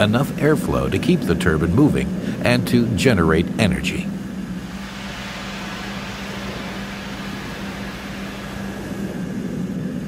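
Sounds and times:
low hum: 0.0 - 10.0
air rushing through turbine: 4.2 - 10.0.

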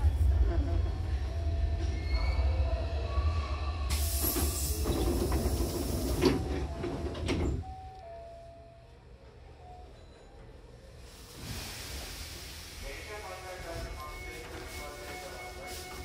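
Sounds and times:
train low hum: 0.0 - 16.0
air hiss: 11.2 - 13.1.

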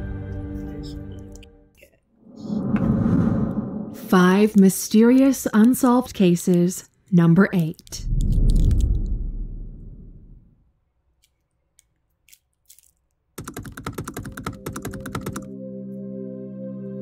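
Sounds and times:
keyboard typing clicks: 13.4 - 15.5
ambient music chord: 15.5 - 17.0.

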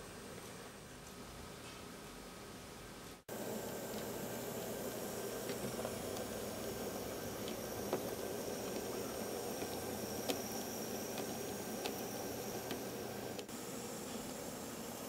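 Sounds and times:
model train motor whirring: 3.5 - 14.9
wheels clicking on rails: 3.6 - 13.5.

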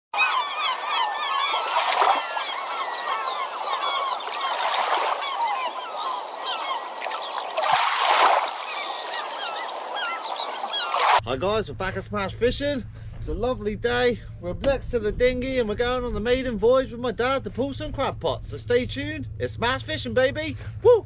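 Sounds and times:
flock of birds calling: 0.2 - 11.2.

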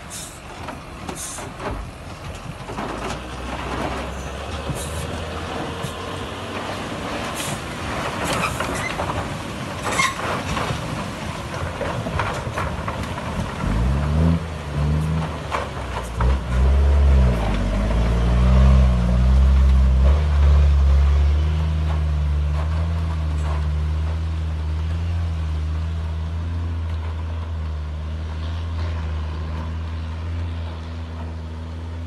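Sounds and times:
heavy diesel engine revving: 13.5 - 24.2.

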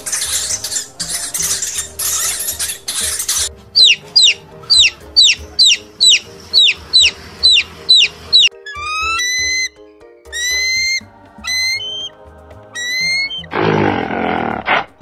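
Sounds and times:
background music: 0.0 - 15.0
chicks peeping: 3.8 - 9.7.

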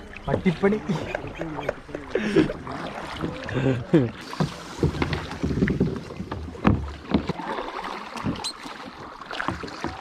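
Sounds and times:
paddle splashing in water: 0.0 - 10.0
paddle knocks: 4.2 - 10.0.

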